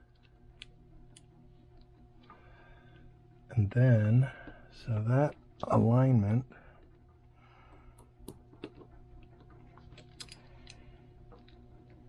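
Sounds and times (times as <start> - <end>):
low steady hum: 0.0 - 12.0
small metal parts clicking: 9.8 - 10.8.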